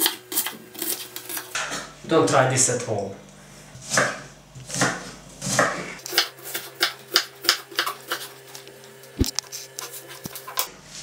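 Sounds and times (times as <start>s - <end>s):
knife chopping on wooden board: 3.8s - 8.4s.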